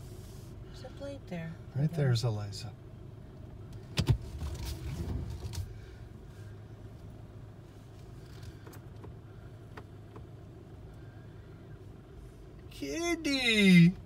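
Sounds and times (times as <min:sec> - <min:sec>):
car engine low hum: 0:00.0 - 0:14.0
rumbling handling noise: 0:03.5 - 0:11.1.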